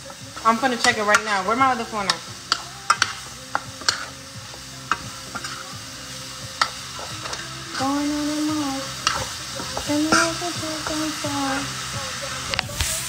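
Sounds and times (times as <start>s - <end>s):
vegetables sizzling in a pan: 0.0s - 13.0s
spoon clicking against pan: 2.1s - 4.1s.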